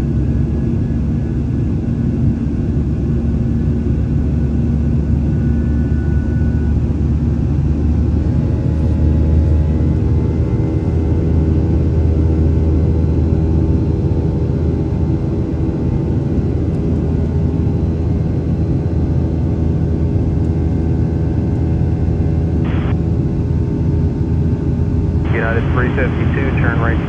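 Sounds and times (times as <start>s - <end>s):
jet engine cabin rumble: 0.0s - 27.0s
radio static burst: 22.7s - 23.0s, 25.3s - 27.0s.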